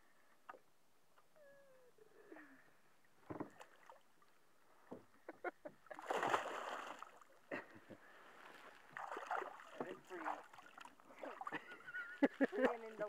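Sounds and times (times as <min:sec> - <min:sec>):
splash in water: 0:05.9 - 0:07.3, 0:08.9 - 0:11.6.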